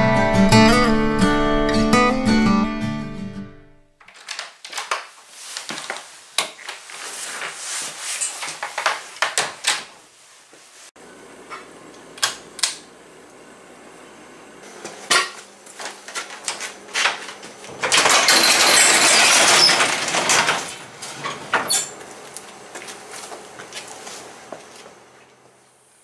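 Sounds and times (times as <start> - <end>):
garage door rattling rumble: 17.7 - 22.0.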